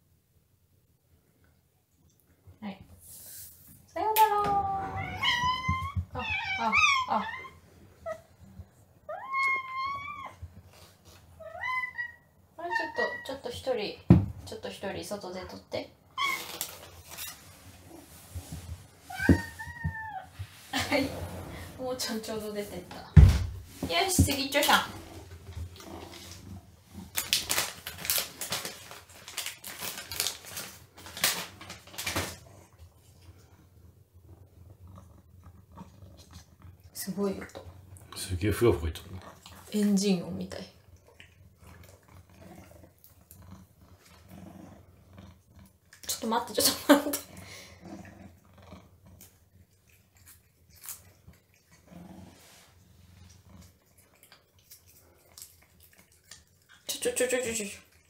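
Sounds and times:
cat's low rumble: 17.7 - 23.8
cat licking and gulping: 40.7 - 46.2, 47.2 - 58.0.

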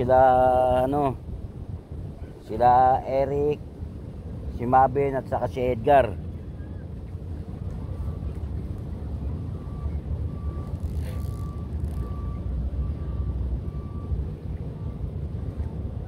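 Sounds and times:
low outdoor rumble: 0.0 - 16.0
faint short high beeps: 9.5 - 14.2.

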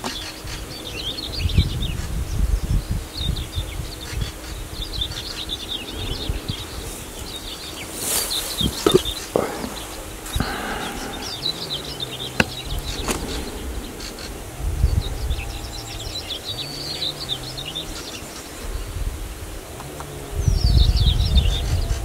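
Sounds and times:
small birds chirping: 0.0 - 22.0
insect buzzing: 4.5 - 21.7.

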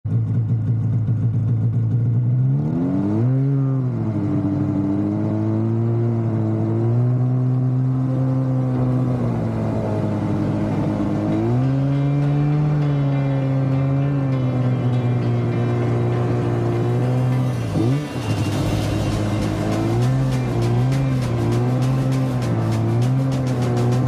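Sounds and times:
snowmobile engine revving: 2.2 - 14.6, 15.7 - 24.0.

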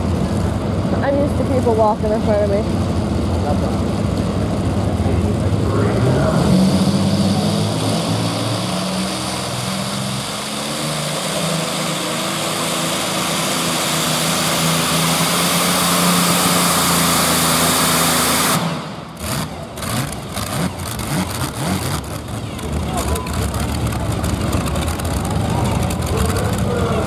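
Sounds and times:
tractor engine running hard: 0.0 - 27.0.

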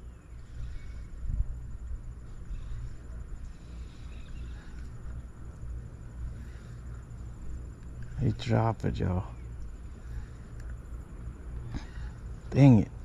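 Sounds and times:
wind buffeting microphone: 0.0 - 3.7
faint high chirping calls: 0.0 - 7.5.

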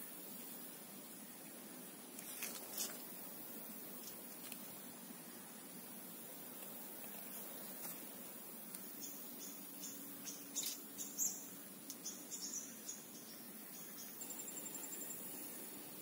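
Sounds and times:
faint steady high tone: 8.9 - 16.0.

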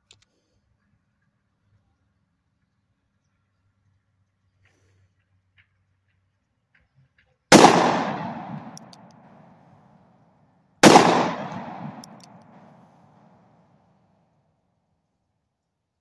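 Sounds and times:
revolver gunshots with echo: 7.5 - 9.6, 10.8 - 13.3.

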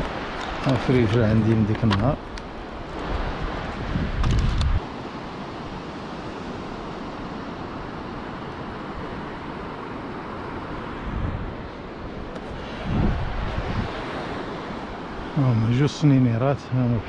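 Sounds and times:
wind buffeting microphone: 0.0 - 4.9, 10.8 - 17.0
surf washing on beach: 0.0 - 17.0
wind: 0.0 - 17.0.

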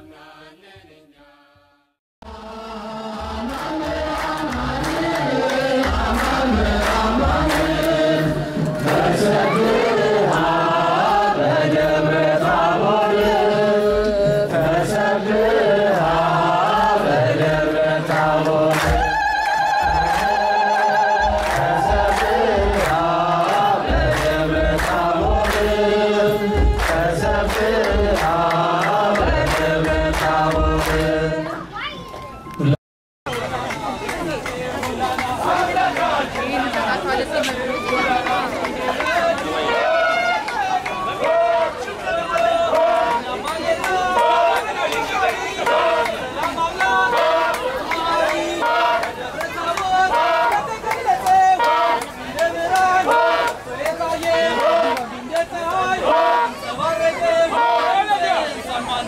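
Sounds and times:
congregation and choir chanting: 0.0 - 31.8, 34.5 - 59.0
steady beat of strikes: 2.3 - 9.4, 17.3 - 31.2.

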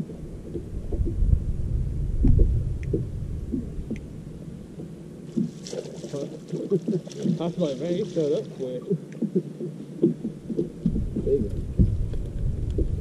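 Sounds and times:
wind gusting on microphone: 0.0 - 5.5, 10.0 - 13.0
faint ticks: 2.2 - 4.1, 8.8 - 13.0.

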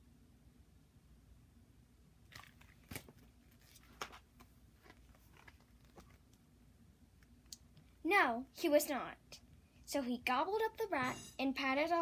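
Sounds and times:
paper rustling and crackling: 2.3 - 6.3.

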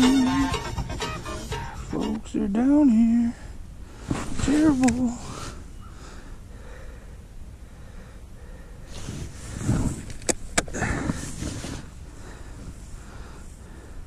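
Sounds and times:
jacket rustling: 4.0 - 5.4
low wind rumble on microphone: 8.8 - 14.0.

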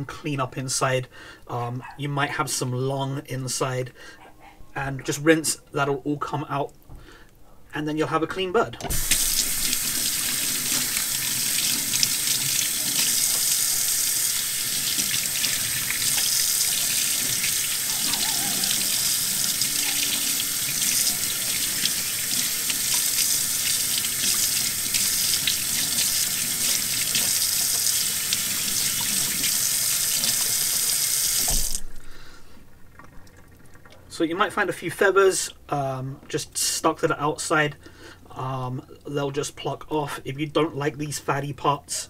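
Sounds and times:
tap water splashing in sink: 8.8 - 13.8, 14.7 - 31.9
hands rinsing meat: 8.9 - 31.9.

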